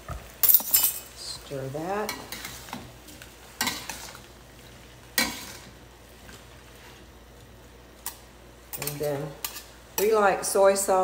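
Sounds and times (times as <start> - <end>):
food sizzling in a wok: 0.0 - 6.1
metal spatula scraping wok: 8.7 - 10.1.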